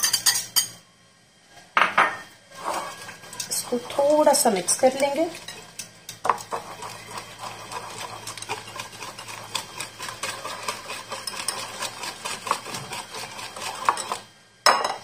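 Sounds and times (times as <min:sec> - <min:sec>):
whisk beating cream in bowl: 0:02.5 - 0:14.3.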